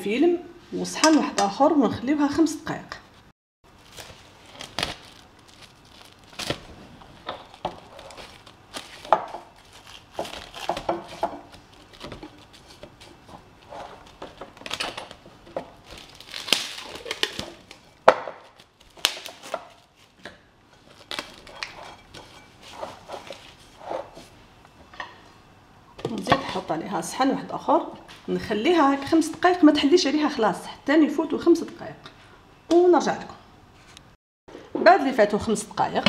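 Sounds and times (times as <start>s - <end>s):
cling film crinkling: 3.7s - 20.2s, 20.8s - 21.8s.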